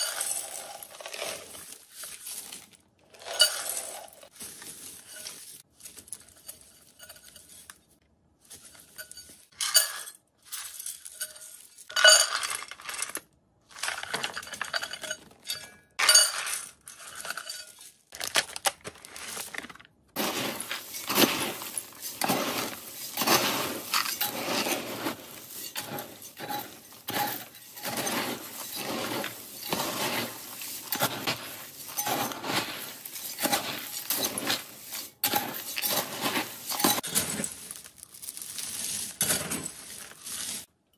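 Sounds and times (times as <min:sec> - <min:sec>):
metal scoop stirring dry pellets: 0:00.0 - 0:07.8, 0:20.2 - 0:40.7.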